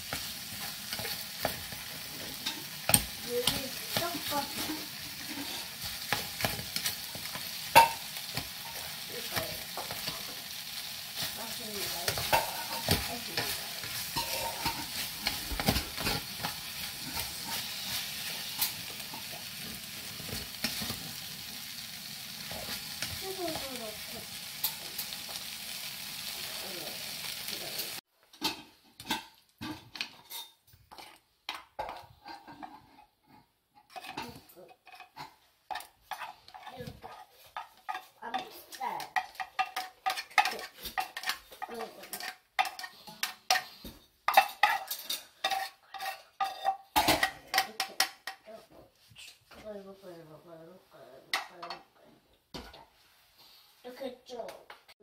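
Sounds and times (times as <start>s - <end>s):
vegetables sizzling in oil: 0.0s - 29.8s, 35.7s - 48.3s
utensil scraping metal pot: 0.1s - 21.2s, 28.4s - 48.4s.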